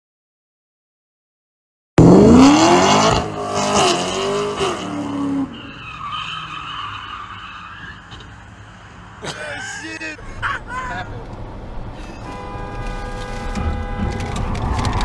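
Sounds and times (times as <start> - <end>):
car engine revving: 2.0 - 5.6.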